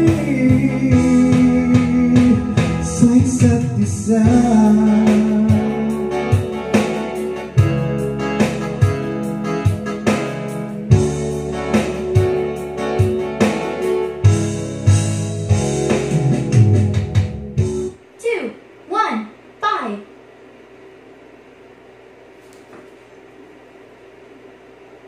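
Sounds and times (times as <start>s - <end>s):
ballad backing track with guitar: 0.0s - 17.9s.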